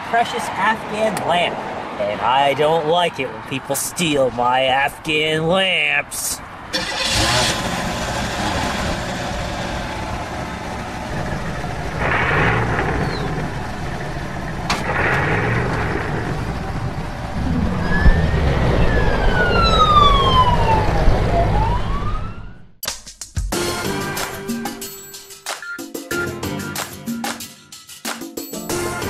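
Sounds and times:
car engine running: 6.7s - 20.4s
police siren wailing: 11.0s - 22.7s.

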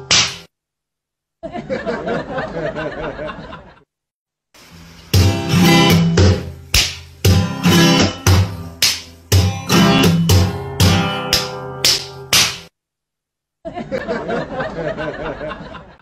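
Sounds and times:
strummed ukulele music: 5.1s - 12.7s.

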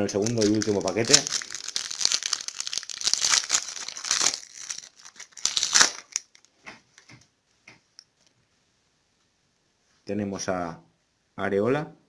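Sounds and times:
foil wrapper crinkling: 0.0s - 7.1s.

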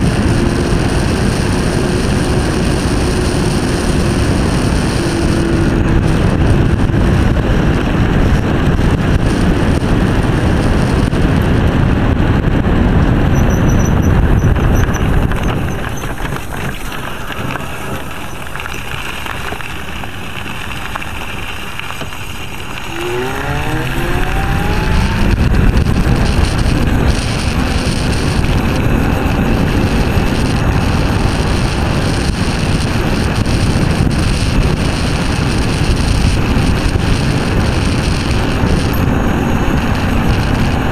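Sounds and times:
road noise: 0.0s - 40.9s
wind rushing over microphone: 0.0s - 40.9s
electric motor whine: 13.6s - 40.9s.

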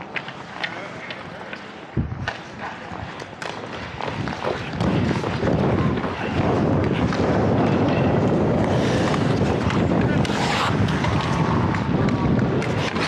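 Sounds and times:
wind buffeting microphone: 2.0s - 2.3s, 3.8s - 13.0s.

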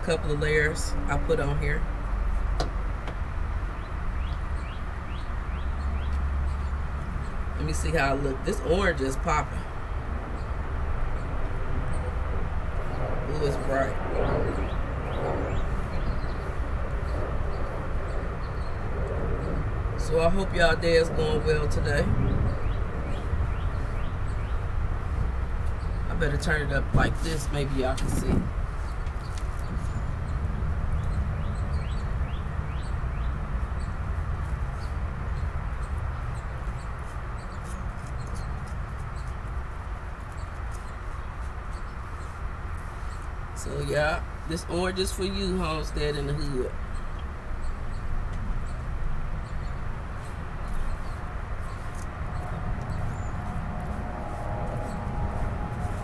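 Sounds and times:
airplane droning overhead: 0.0s - 56.0s
low outdoor rumble: 0.0s - 56.0s
bird chirps: 3.7s - 7.8s, 40.2s - 56.0s.

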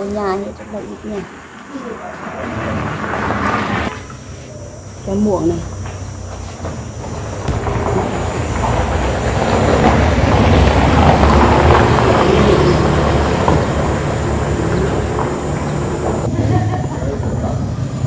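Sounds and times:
vehicle engine rumble passing: 0.0s - 4.2s, 5.4s - 18.0s
road noise: 0.0s - 18.0s.

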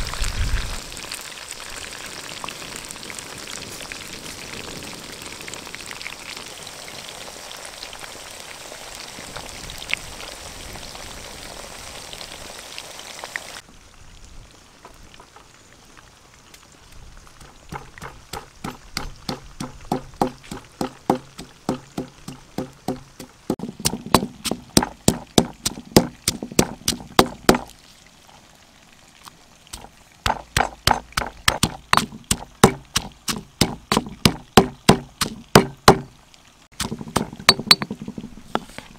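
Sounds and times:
food frying in hot oil: 0.0s - 38.9s
pestle pounding in stone mortar: 17.4s - 27.7s, 29.8s - 36.1s, 36.8s - 38.3s.

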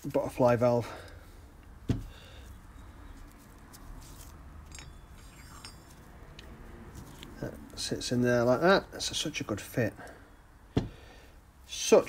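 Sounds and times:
low room hum: 0.0s - 12.0s
light metallic clicks and clinks: 4.6s - 7.3s.

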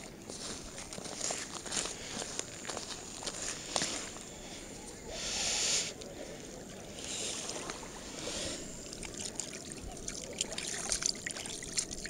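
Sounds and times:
groundbait pouring: 8.8s - 12.0s.

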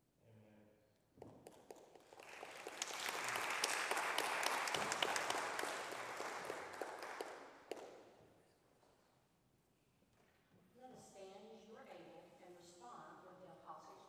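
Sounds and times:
congregation clapping: 1.4s - 8.0s.

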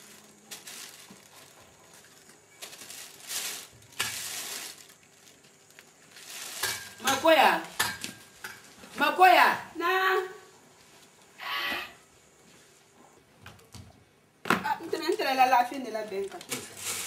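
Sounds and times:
plastic bag rustling: 0.0s - 9.1s, 15.0s - 17.0s.

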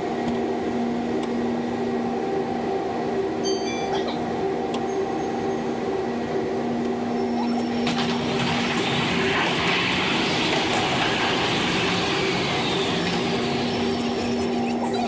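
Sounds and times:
steady hum: 0.0s - 15.0s
train wheels rumbling on rail: 4.0s - 15.0s.

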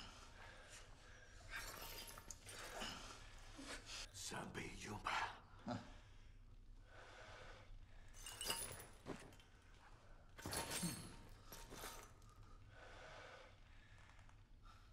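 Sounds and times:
broken glass tinkling and crunching: 1.5s - 3.0s, 8.2s - 9.4s, 10.4s - 12.2s.

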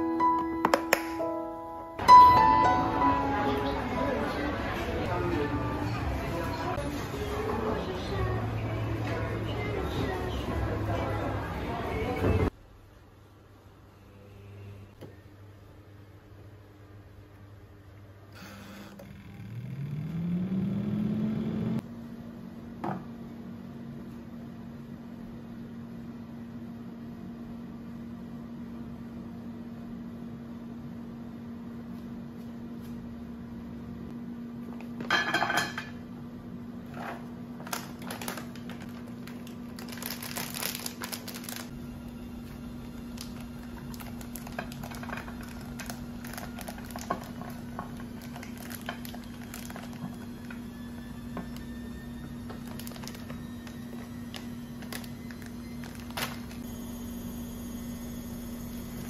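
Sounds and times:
fan motor spinning up: 18.4s - 21.8s, 41.5s - 59.0s
plastic bag crinkling: 37.6s - 41.8s, 42.9s - 50.6s, 52.5s - 56.6s
steady low hum: 41.4s - 59.0s.

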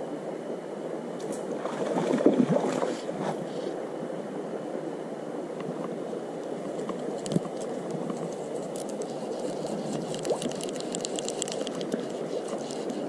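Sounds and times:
stream rushing: 1.0s - 13.0s
light clicks and taps: 5.6s - 13.0s.

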